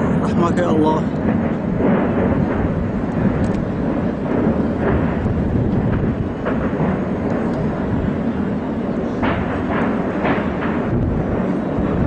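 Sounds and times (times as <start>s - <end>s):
distant explosion rumble: 0.0s - 12.0s.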